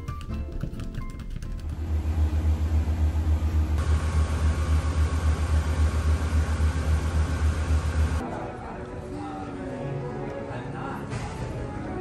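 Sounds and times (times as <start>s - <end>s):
centrifuge pulsing hum: 1.7s - 8.2s.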